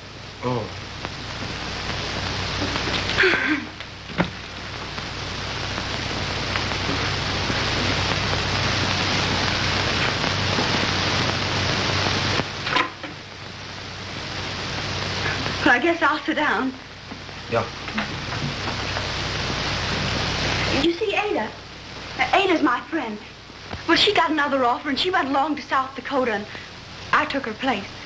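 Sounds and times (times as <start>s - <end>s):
low hum: 0.0s - 16.1s
old film soundtrack hiss: 0.0s - 28.0s.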